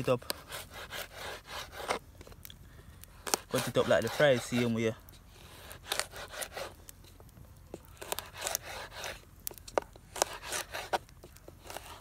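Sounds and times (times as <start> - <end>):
knife slicing cactus pads: 3.2 - 4.8, 5.6 - 6.7, 7.8 - 12.0.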